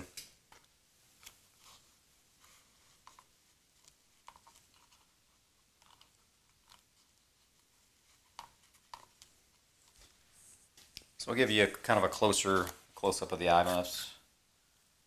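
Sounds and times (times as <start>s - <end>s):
faint clicks and taps of handling: 2.4s - 5.2s, 5.8s - 11.8s.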